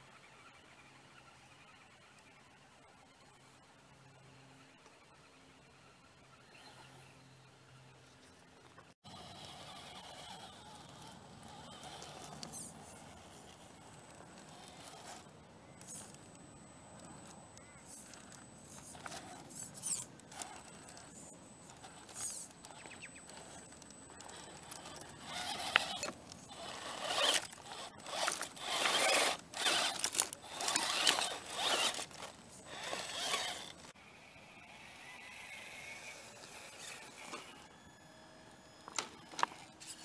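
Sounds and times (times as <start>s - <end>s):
toy car electric motor whirring: 9.0s - 37.8s, 38.8s - 40.0s.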